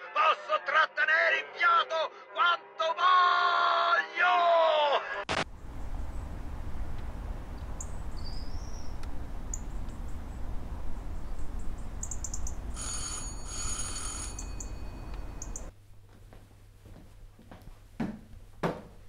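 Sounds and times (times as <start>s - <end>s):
low rumble: 5.5s - 12.8s
bird chirps: 7.5s - 12.8s, 14.6s - 15.7s
loud high bird trill: 7.6s - 9.8s, 11.2s - 13.8s.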